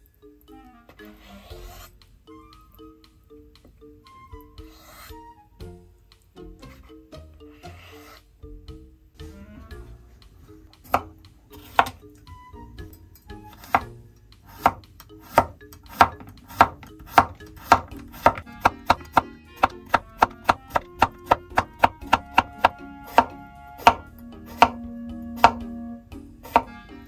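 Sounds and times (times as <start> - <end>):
soft instrumental music: 0.0 - 27.0
knife chopping on wooden board: 10.9 - 12.0, 13.6 - 25.7, 26.4 - 26.8.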